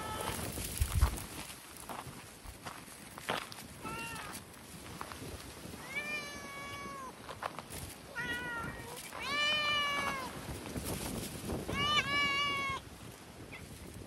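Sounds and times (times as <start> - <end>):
cat meowing: 0.0 - 0.4, 3.8 - 4.4, 5.8 - 7.2, 8.2 - 10.3, 11.7 - 12.8.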